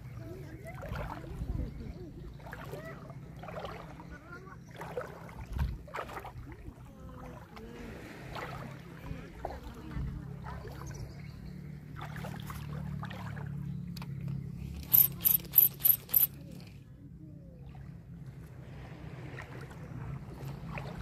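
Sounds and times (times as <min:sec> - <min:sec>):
fishing reel whirring: 0:14.8 - 0:16.4.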